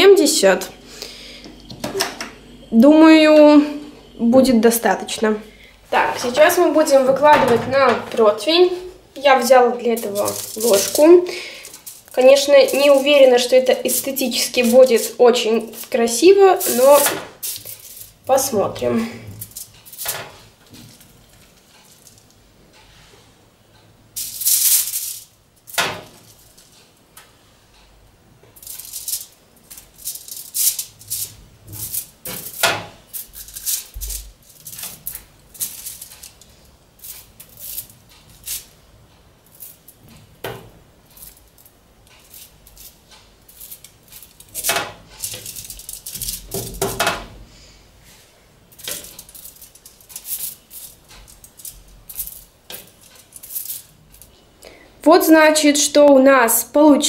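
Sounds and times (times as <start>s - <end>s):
foil crinkling: 9.9s - 18.2s.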